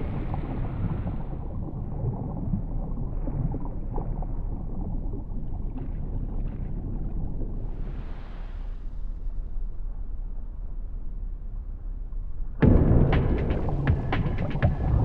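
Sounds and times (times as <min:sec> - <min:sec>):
underwater churning of pool water: 0:00.0 - 0:08.6
faint crackles: 0:00.0 - 0:09.1.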